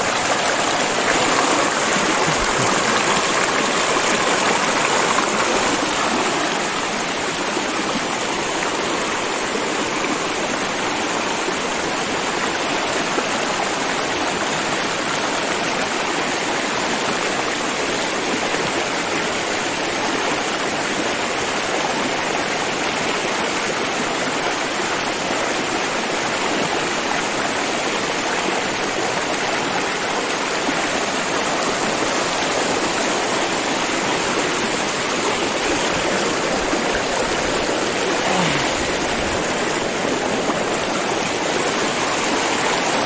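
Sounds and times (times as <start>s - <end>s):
river water rushing over rocks: 0.0s - 43.0s.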